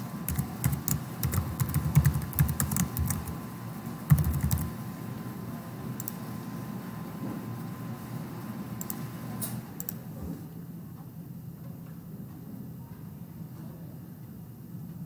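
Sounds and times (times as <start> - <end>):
typing on computer keyboard: 0.3 - 3.4, 4.1 - 4.7.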